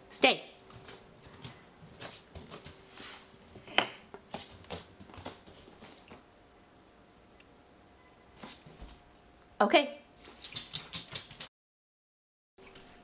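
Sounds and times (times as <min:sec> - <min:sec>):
footsteps on laminate floor: 0:00.7 - 0:03.1.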